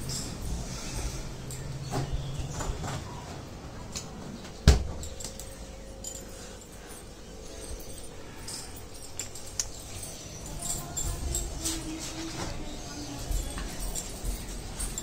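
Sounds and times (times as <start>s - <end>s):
refrigerator door shutting: 4.6s - 5.1s.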